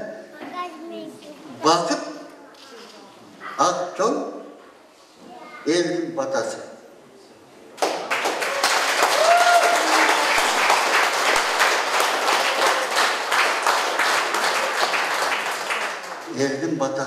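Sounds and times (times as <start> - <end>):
crowd applauding: 7.8 - 16.4.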